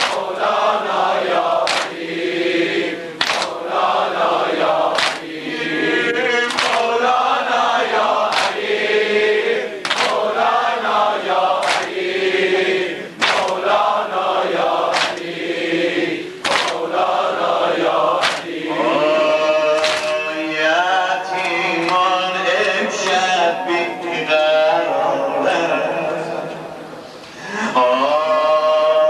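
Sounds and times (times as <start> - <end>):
chest-beating slaps: 0.0 - 0.3, 1.6 - 2.0, 3.2 - 3.6, 4.9 - 5.3, 6.5 - 6.9, 8.3 - 8.7, 9.8 - 10.2, 11.6 - 12.0, 13.2 - 13.6, 14.9 - 15.3, 16.4 - 16.8, 18.2 - 18.6, 19.8 - 20.2
men chanting in unison: 0.0 - 26.8.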